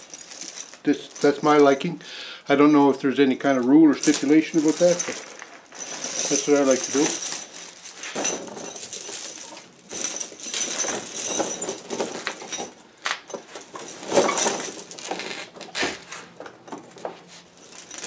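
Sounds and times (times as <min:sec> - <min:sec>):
tire chains clinking: 0:00.0 - 0:18.0.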